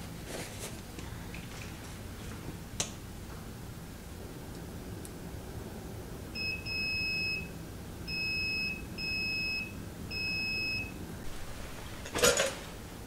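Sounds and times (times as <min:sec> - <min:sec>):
multimeter high beeps: 0:06.4 - 0:07.5, 0:08.1 - 0:10.9
multimeter chirp: 0:06.4 - 0:11.0.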